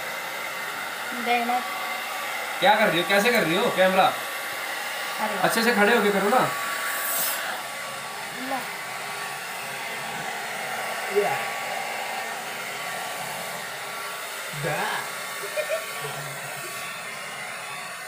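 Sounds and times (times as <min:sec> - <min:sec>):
hair dryer blowing: 0:00.0 - 0:18.0.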